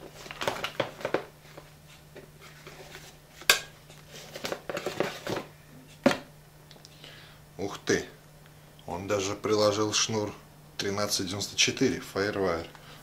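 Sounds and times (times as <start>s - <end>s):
packing paper rustling: 0.0s - 5.5s.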